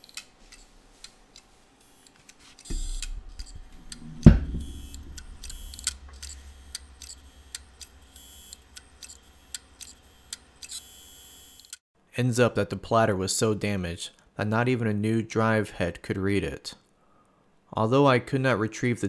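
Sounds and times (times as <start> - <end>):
hard drive knock: 2.7 - 8.1
hard drive hum: 2.7 - 11.5.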